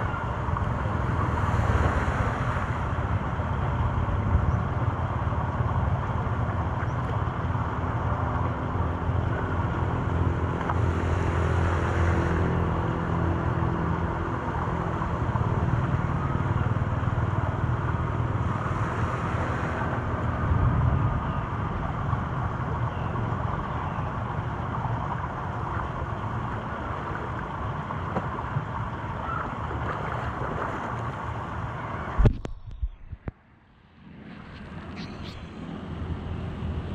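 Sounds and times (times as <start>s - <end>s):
deep rumble: 31.4s - 36.9s.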